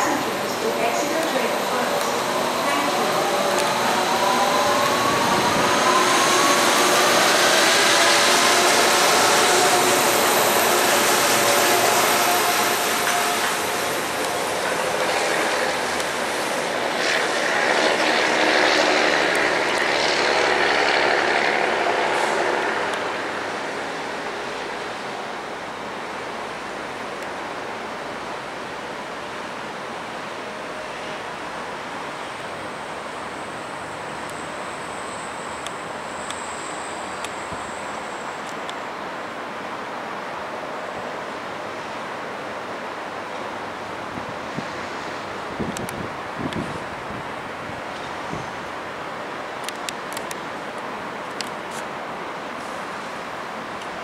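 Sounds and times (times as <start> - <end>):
monorail train whirring past: 0.0 - 54.0
wind on microphone: 4.6 - 6.4, 45.5 - 48.7
faint high whine: 32.2 - 38.8.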